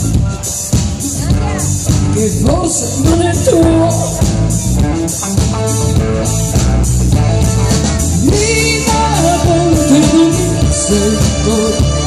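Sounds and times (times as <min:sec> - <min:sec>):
live rock band playing: 0:00.0 - 0:12.0
singer's voice: 0:01.0 - 0:04.6, 0:08.2 - 0:12.0.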